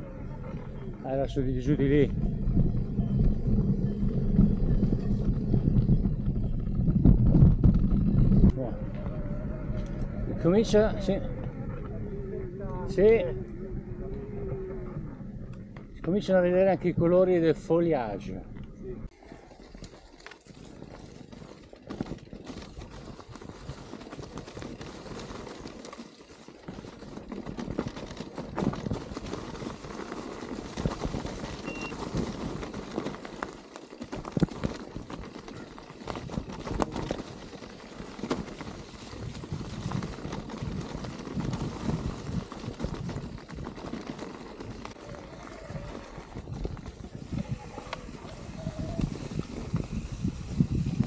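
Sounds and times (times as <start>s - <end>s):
bike tyres crunching over stones: 19.1s - 51.0s
bike knocks and rattles: 19.8s - 45.0s.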